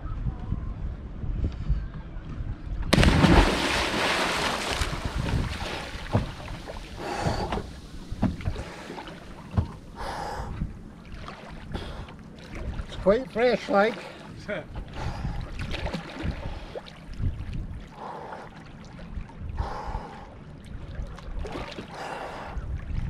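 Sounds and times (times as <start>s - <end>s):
wind on microphone: 0.0s - 11.0s, 14.7s - 17.9s, 19.1s - 23.0s
water rushing along boat hull: 2.9s - 23.0s.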